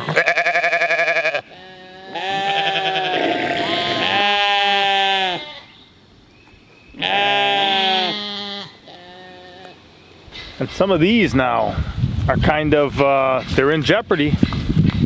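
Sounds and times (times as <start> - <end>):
sheep bleating: 0.0 - 5.8, 7.0 - 9.8.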